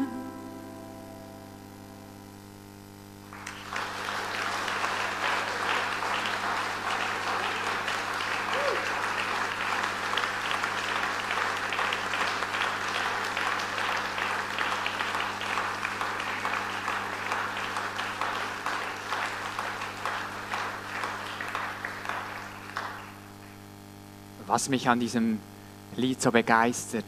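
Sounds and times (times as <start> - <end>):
crowd applauding: 3.3 - 23.7.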